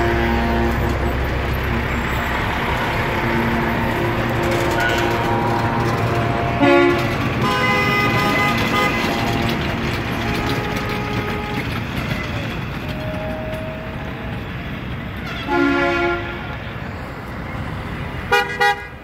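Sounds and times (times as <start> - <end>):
vehicle horns honking: 0.0 - 12.2, 15.2 - 16.6, 18.3 - 19.0
passing traffic rumble: 0.0 - 19.0.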